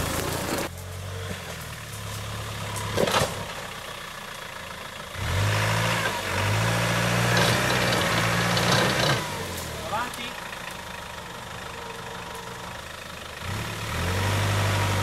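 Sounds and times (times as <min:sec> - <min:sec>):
off-road truck engine revving: 0:05.0 - 0:15.0.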